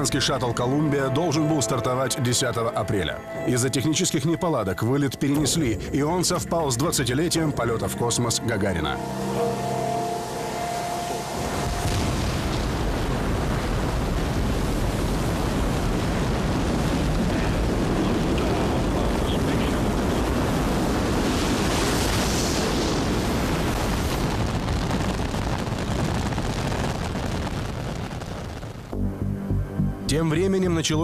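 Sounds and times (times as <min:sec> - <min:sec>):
rocket engines rumbling: 0:05.2 - 0:29.0.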